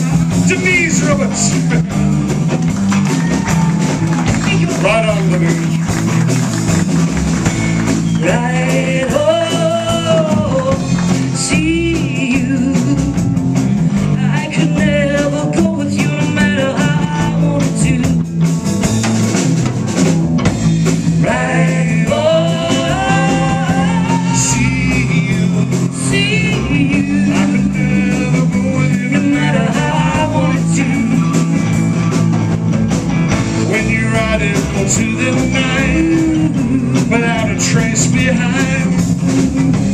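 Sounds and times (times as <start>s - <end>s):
bass guitar: 0.0s - 39.9s
drum kit: 0.0s - 39.9s
electric guitar: 0.0s - 39.9s
woman singing: 8.2s - 10.8s, 11.4s - 13.2s, 14.1s - 18.2s, 21.2s - 25.2s, 26.0s - 31.3s.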